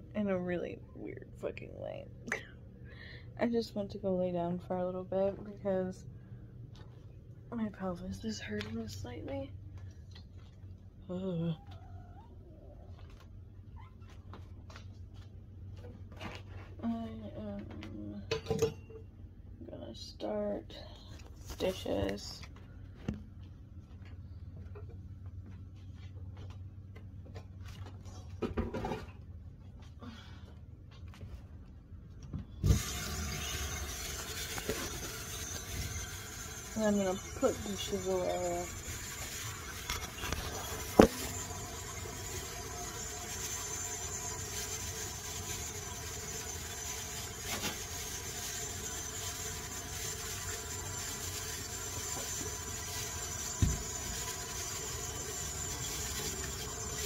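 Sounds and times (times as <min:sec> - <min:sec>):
dishes clinking and knocking: 0:18.3 - 0:19.0.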